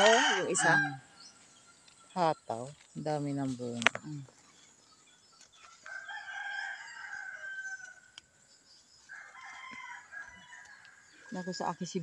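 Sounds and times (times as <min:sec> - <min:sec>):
rooster crowing: 0:00.0 - 0:01.0, 0:05.7 - 0:08.2, 0:09.1 - 0:11.8.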